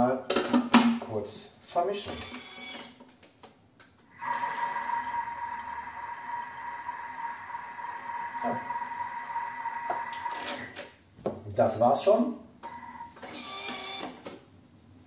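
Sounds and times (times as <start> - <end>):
kitchen appliance motor whine: 4.1 - 10.8, 12.7 - 14.2.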